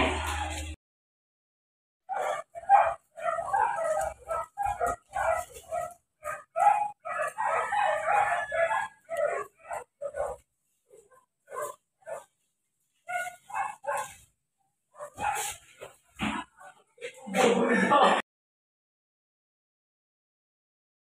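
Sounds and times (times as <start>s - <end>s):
dogs barking: 2.1s - 12.4s, 13.0s - 18.0s.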